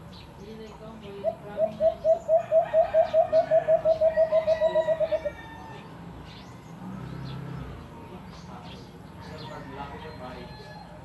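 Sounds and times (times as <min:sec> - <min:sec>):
bird hooting notes: 0:01.2 - 0:05.4.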